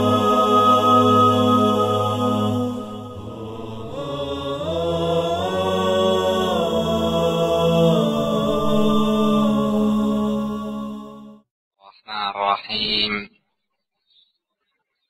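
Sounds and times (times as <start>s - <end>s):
low drone: 0.0s - 11.4s
vocal chant with held notes: 0.0s - 11.5s.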